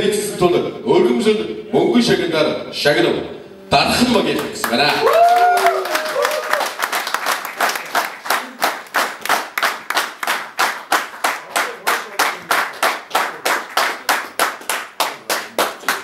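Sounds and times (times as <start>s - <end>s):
group clapping in rhythm: 4.2s - 16.0s.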